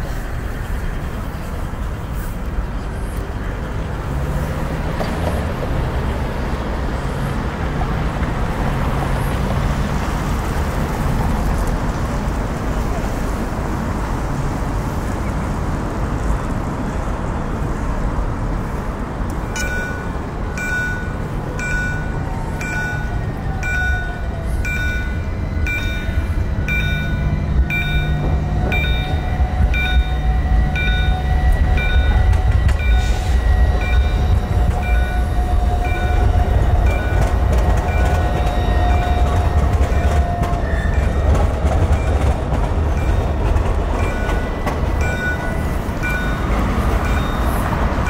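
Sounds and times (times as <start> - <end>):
tram motor whine: 0.0 - 48.0
tram rumble: 0.0 - 48.0
electronic signal beeping: 19.6 - 39.6.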